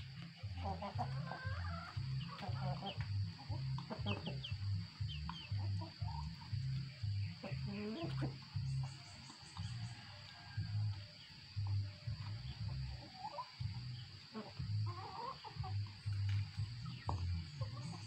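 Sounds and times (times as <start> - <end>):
low pulsing sound: 0.0 - 10.0
chickens clucking and peeping: 0.0 - 18.0.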